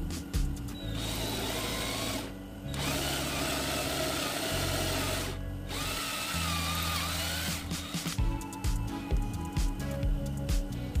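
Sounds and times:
cordless drill boring into plywood: 0:00.9 - 0:08.1.

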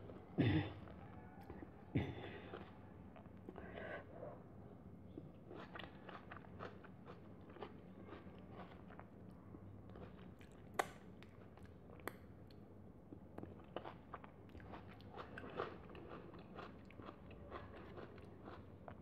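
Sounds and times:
person chewing with wet mouth smacks: 0:05.1 - 0:09.1, 0:09.9 - 0:18.6.

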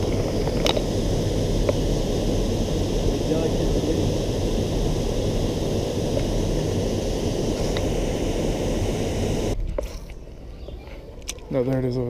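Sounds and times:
rumbling outdoor rush: 0:00.0 - 0:09.6.

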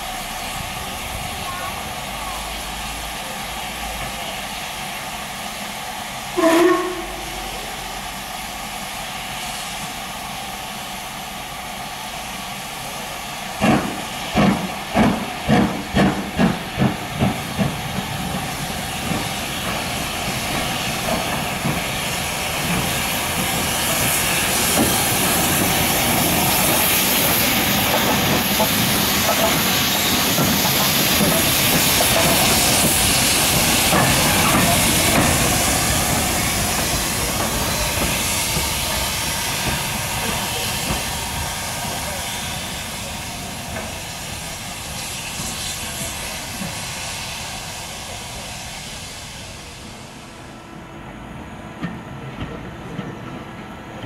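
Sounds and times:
steam locomotive hissing steam: 0:00.0 - 0:54.0
steam whistle blast: 0:06.4 - 0:07.8
locomotive chuffing: 0:12.2 - 0:50.4.

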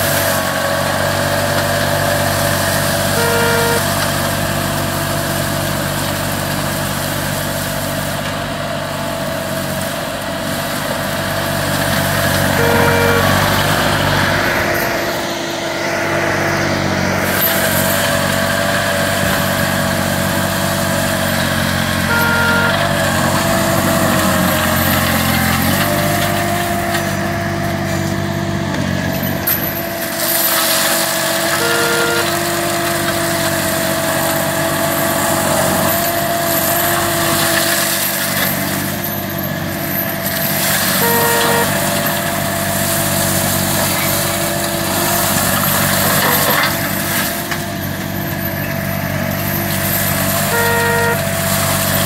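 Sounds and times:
mower engine running under load: 0:00.0 - 0:52.0
mulcher shredding brush: 0:00.0 - 0:52.0.

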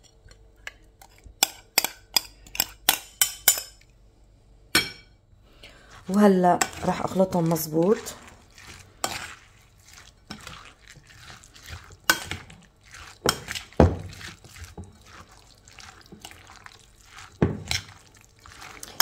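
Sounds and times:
wet squelching of salad stirred: 0:05.4 - 0:19.0.

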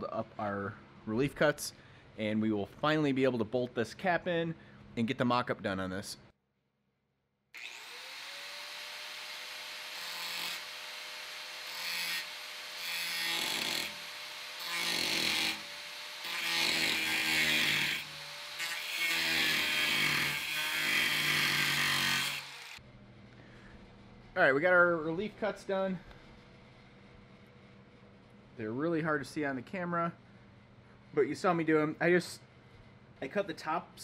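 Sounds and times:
angle grinder motor whine: 0:07.6 - 0:17.2, 0:21.7 - 0:22.8
grinding wheel cutting sheet metal: 0:07.6 - 0:22.8.

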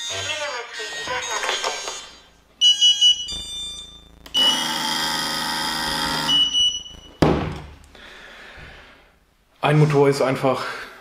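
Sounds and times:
short high beeps: 0:06.3 - 0:07.2.

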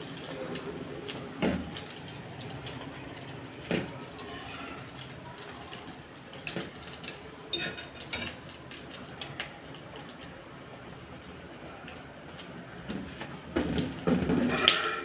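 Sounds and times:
food sizzling in a frying pan: 0:00.0 - 0:15.0
metal spatula scraping a pan: 0:14.5 - 0:15.0.

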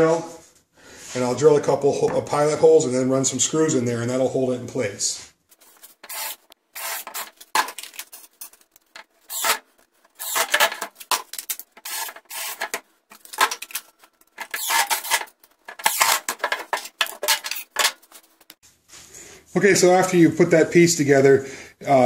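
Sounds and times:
cordless drill bursts: 0:06.0 - 0:07.3, 0:09.3 - 0:09.6, 0:10.2 - 0:10.8, 0:11.8 - 0:12.8, 0:14.5 - 0:15.2.

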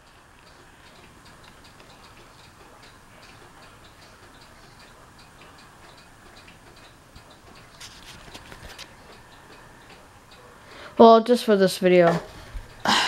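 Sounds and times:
faint rush of air from fan: 0:00.0 - 0:13.0
light ticking of ceiling fan: 0:00.0 - 0:13.0.

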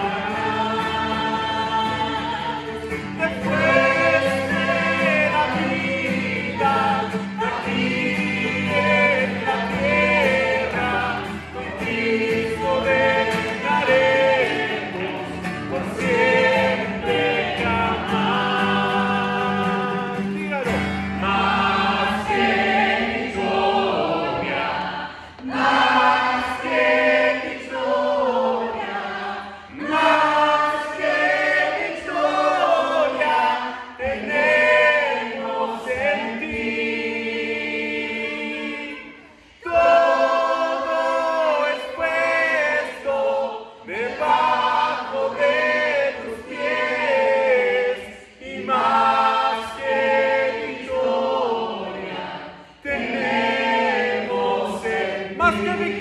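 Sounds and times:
acoustic guitar strumming: 0:00.0 - 0:39.0, 0:52.9 - 0:56.0
man and women singing worship song: 0:00.0 - 0:56.0.

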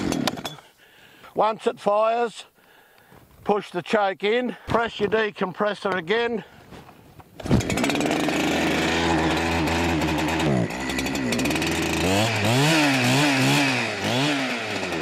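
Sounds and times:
chainsaw starting and idling: 0:00.0 - 0:00.8, 0:07.3 - 0:15.0.

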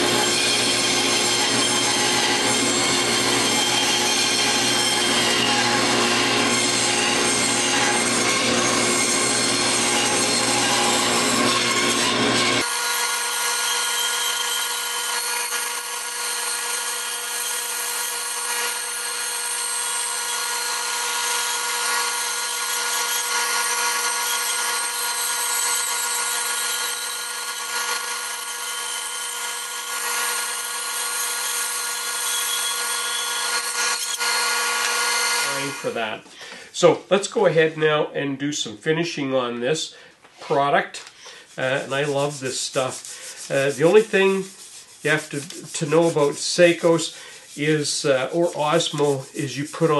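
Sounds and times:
saw blade cutting wood: 0:00.0 - 0:36.0, 0:41.2 - 0:49.9
bandsaw whine: 0:00.0 - 0:36.2, 0:41.2 - 0:49.9.

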